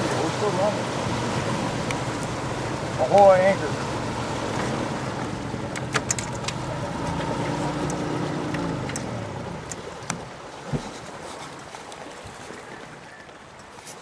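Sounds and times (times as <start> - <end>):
boat motor running: 0.0 - 10.4.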